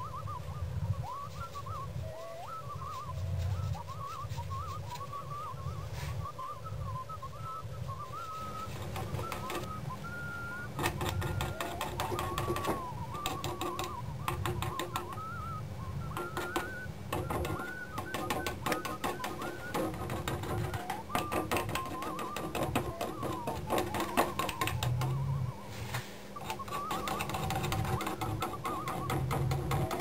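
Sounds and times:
wavering whistle-like tone: 0.0 - 30.0
paintbrush tapping on wood: 8.7 - 9.7, 10.8 - 15.3, 16.1 - 25.2, 26.4 - 30.0.

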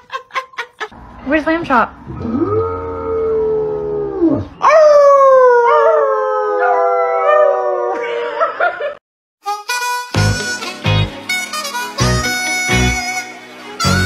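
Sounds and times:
dog howling: 2.2 - 8.4
people and dog howling together: 2.2 - 8.5.

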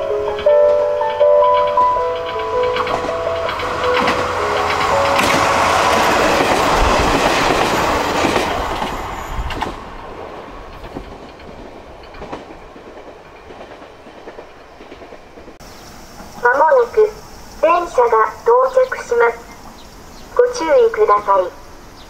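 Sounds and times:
station melody: 0.0 - 6.8
wheels clicking over rail joints: 0.0 - 16.4
train running past: 0.0 - 22.0.

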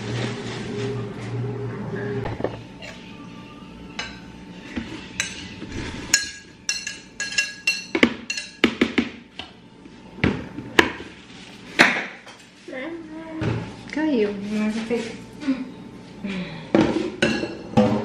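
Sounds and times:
metal utensils clinking on dishes: 5.1 - 8.7.

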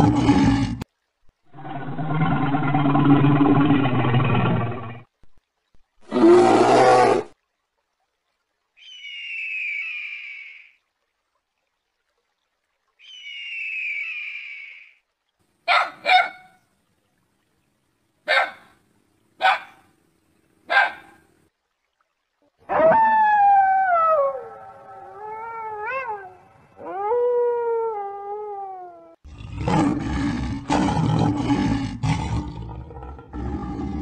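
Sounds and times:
lion roaring and growling: 0.0 - 0.8, 1.5 - 5.0, 29.3 - 34.0
dog barking: 15.7 - 16.6, 18.3 - 18.7, 19.4 - 19.8, 20.7 - 21.2.

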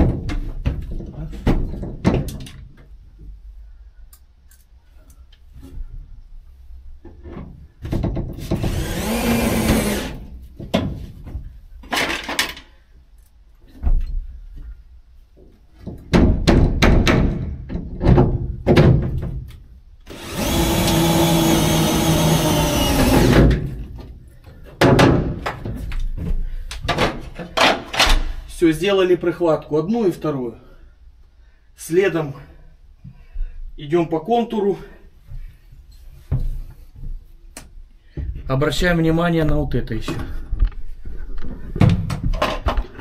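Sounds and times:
cordless drill driving screws: 8.5 - 10.3, 20.1 - 23.6.

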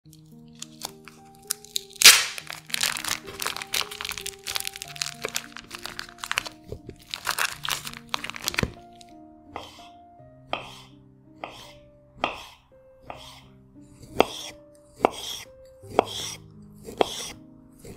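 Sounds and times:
soft background music: 0.1 - 17.9
plastic packaging crinkling: 0.2 - 9.1.

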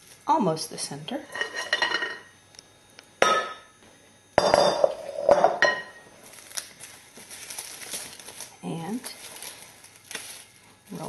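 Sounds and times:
bowl and utensil clinking: 4.4 - 6.0.

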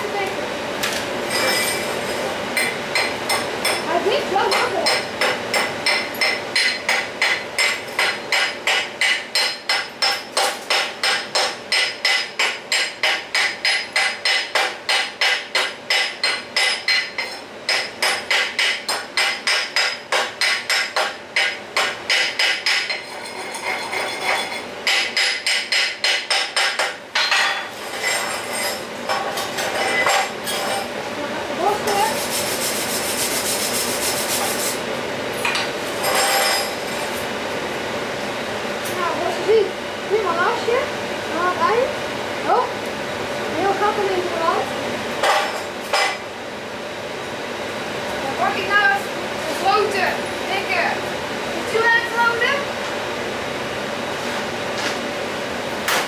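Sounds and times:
wire brush scrubbing metal: 31.8 - 34.9.

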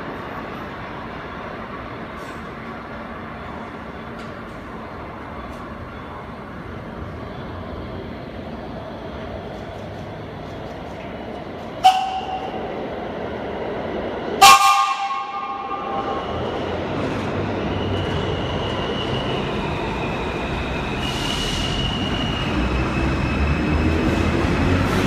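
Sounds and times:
train motors and wheels rumbling: 0.0 - 25.0
train whistle: 11.8 - 12.6, 14.4 - 16.1.

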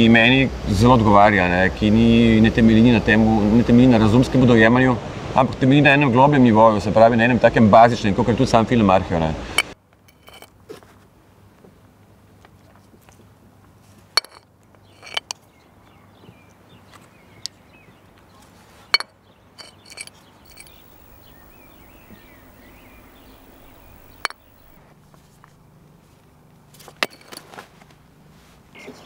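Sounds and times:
sharp clinks and taps: 19.6 - 24.8
faint low hum: 20.5 - 24.8.

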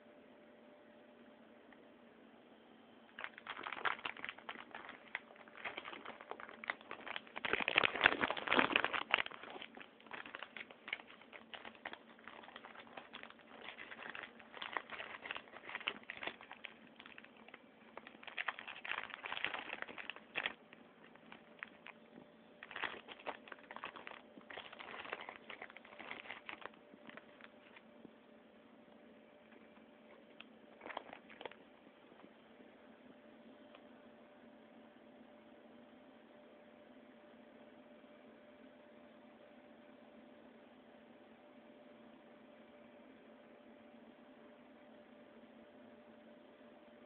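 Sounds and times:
plastic packet crinkling: 3.1 - 27.8, 29.5 - 31.7.

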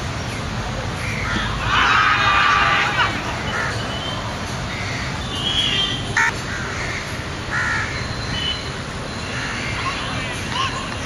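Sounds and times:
crows cawing: 6.2 - 8.0.

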